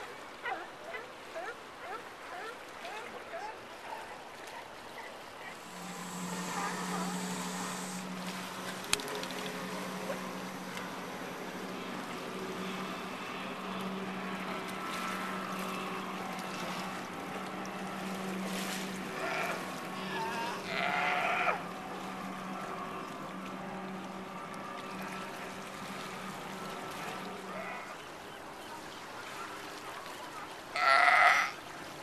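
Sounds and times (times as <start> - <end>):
sea lion calling: 5.4 - 9.1, 19.0 - 21.7, 27.1 - 28.1, 30.7 - 31.6
steady low hum: 5.4 - 28.1
water washing against rocks: 7.0 - 11.0.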